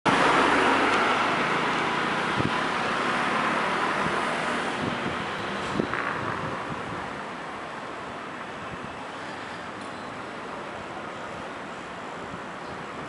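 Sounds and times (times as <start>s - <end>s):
city street traffic: 0.0s - 13.0s.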